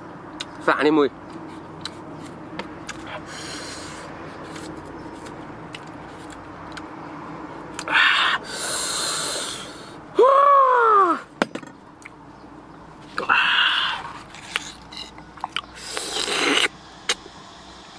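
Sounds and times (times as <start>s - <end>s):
man hissing breath in: 3.2s - 4.1s, 8.0s - 10.0s
man exclaiming ooh: 10.2s - 11.3s.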